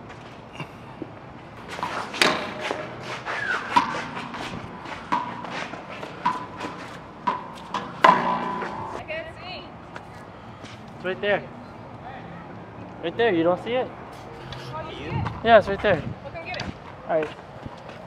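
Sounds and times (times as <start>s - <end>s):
footsteps on concrete: 1.6s - 9.0s, 14.2s - 18.0s
shoe squeaks: 1.7s - 9.0s.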